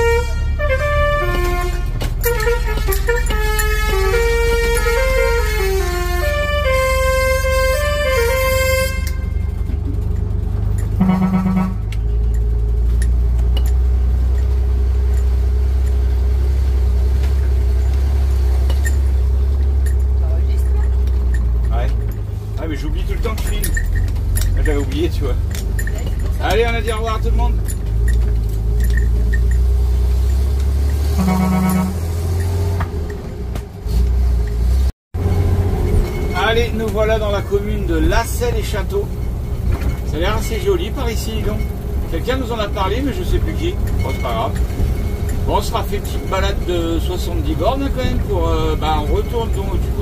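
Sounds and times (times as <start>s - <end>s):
short horn honk: 0.0s - 9.7s, 11.0s - 12.0s, 31.1s - 32.1s
vehicle engine droning: 0.0s - 50.0s.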